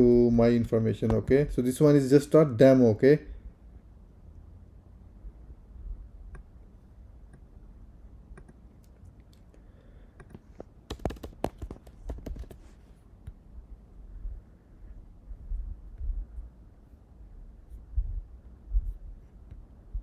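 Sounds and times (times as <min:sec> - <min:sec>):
keyboard and mouse clicks: 0:08.3 - 0:13.4.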